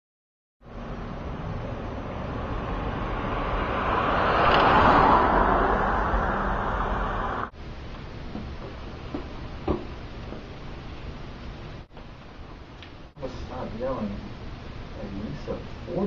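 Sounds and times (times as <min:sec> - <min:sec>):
car passing: 0:00.7 - 0:07.6.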